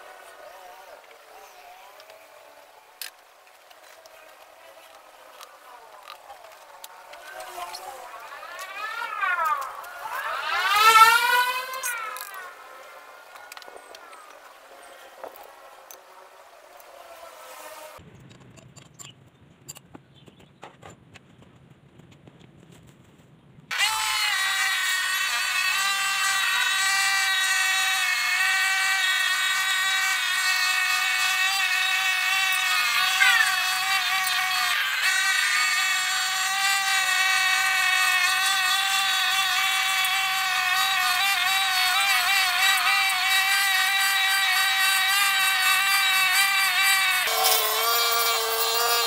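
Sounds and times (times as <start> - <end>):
brush cutter engine buzzing: 0.0 - 18.0, 23.7 - 49.0.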